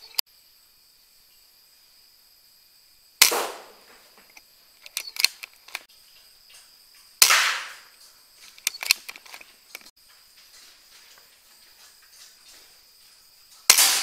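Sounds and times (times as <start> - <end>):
air rifle shots: 3.2 - 4.1, 7.2 - 7.9, 13.7 - 14.0
light clicks: 4.2 - 5.9, 8.4 - 9.9.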